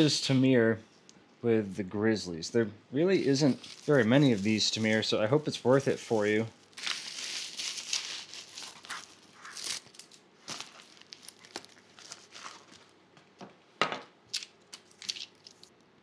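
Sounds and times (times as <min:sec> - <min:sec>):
plastic mailer crinkling: 0:03.2 - 0:12.9.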